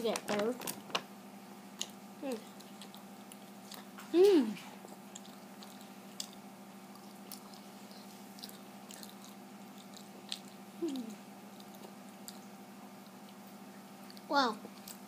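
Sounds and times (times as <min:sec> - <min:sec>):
wet chewing mouth clicks: 0:01.8 - 0:13.4
person humming mm: 0:04.1 - 0:04.7, 0:10.8 - 0:11.2.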